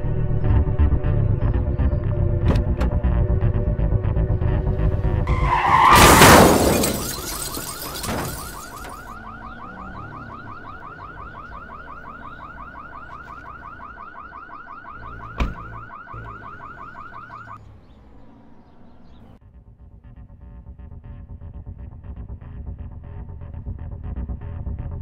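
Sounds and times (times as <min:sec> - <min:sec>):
car alarm warbling chirp: 0:05.3 - 0:17.7
sharp thump: 0:15.4 - 0:15.6.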